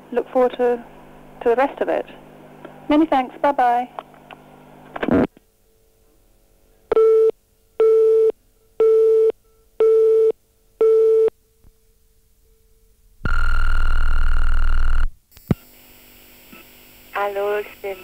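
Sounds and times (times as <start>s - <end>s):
long buzzy beep: 13.2s - 15.8s.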